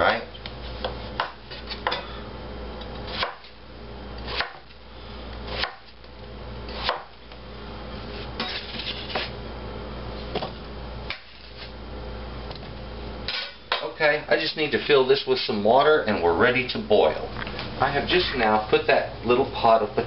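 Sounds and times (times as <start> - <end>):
knife chopping on wooden board: 1.2 - 2.0, 3.1 - 3.6, 4.3 - 4.7, 5.5 - 5.9, 6.7 - 7.1.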